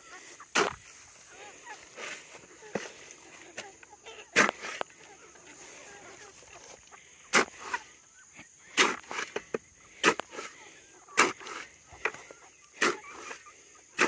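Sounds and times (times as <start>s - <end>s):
shovel mashing pears in bucket: 0.5s - 0.9s, 1.8s - 5.8s, 7.3s - 7.9s, 8.7s - 13.4s.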